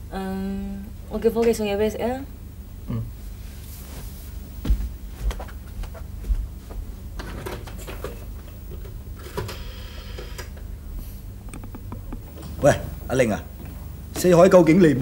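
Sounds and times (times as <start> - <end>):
steady low hum: 0.0 - 15.0
light clicks and knocks: 11.4 - 12.6.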